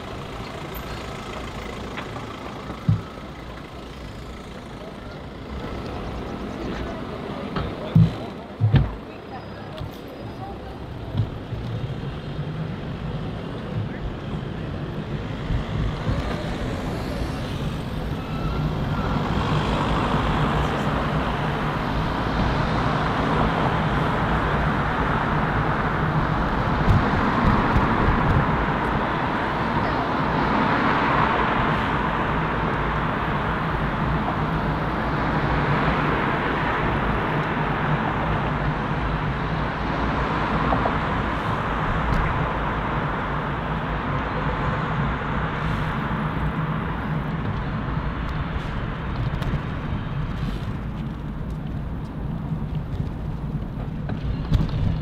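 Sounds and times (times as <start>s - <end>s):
road traffic: 0.0s - 55.0s.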